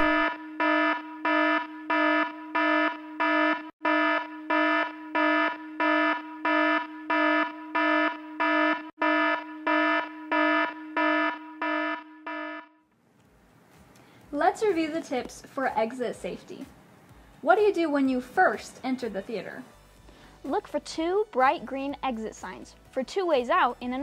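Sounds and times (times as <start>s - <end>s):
fire alarm horn pulsing: 0.0s - 12.9s.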